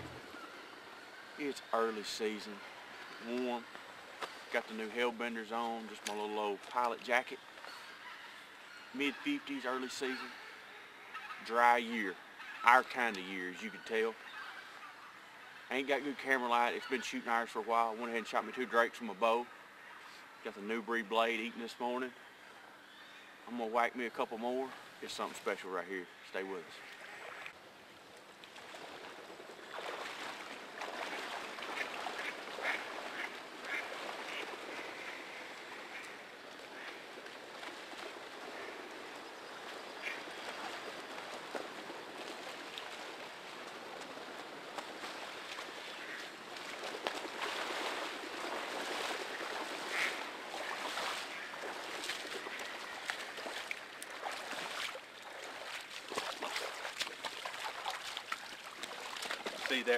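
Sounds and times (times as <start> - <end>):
wading through water: 28.2 - 59.9
ducks quacking: 31.0 - 37.1, 39.9 - 40.7, 45.9 - 46.3, 47.6 - 53.6.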